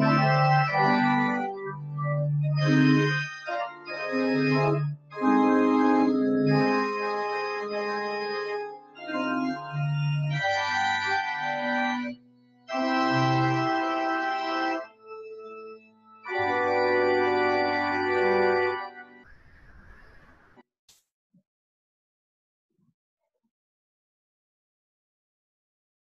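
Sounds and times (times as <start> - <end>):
church organ playing chords: 0.0 - 19.2.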